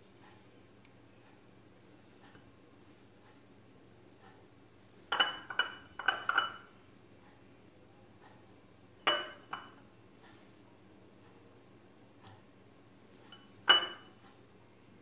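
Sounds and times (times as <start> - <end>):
glass jar clinking: 5.1 - 6.7, 9.1 - 9.8, 13.4 - 14.2.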